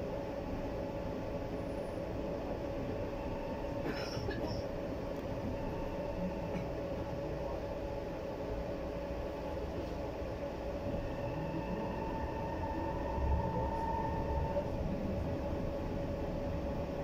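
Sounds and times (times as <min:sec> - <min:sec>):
high squeal: 0:11.6 - 0:14.7.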